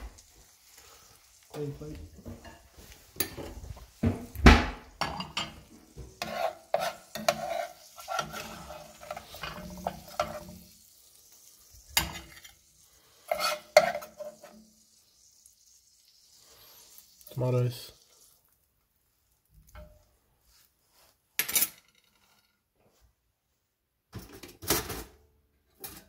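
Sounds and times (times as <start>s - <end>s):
metal spoon scraping frying pan: 2.2s - 4.0s, 5.0s - 10.8s, 11.8s - 15.2s.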